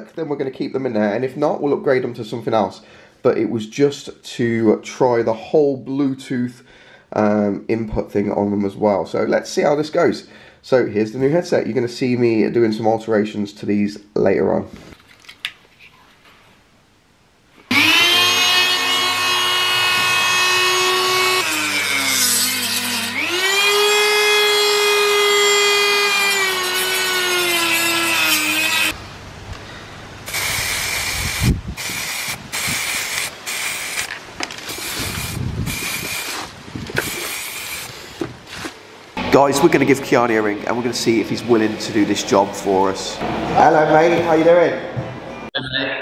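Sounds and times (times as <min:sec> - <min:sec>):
power tool whining: 0:17.6 - 0:29.0.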